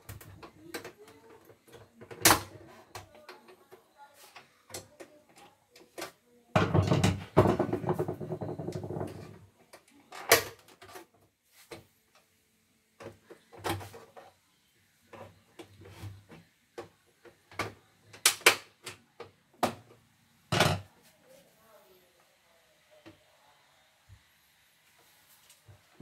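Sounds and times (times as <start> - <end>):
plastic and metal knocks: 6.6 - 9.2.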